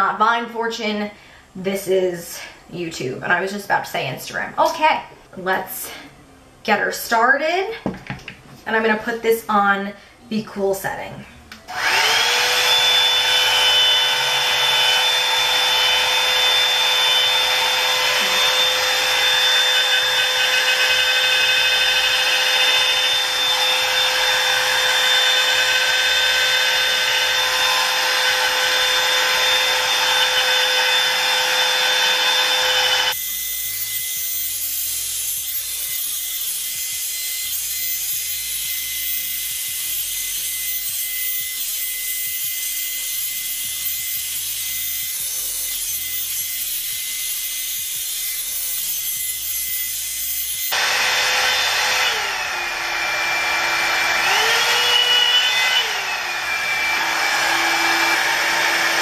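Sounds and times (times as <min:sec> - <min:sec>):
hair dryer motor whine: 0:11.7 - 0:34.6, 0:49.8 - 0:59.0.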